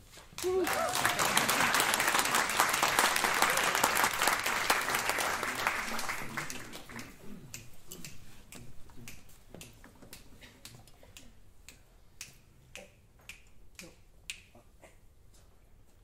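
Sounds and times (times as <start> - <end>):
finger snaps: 7.5 - 15.0.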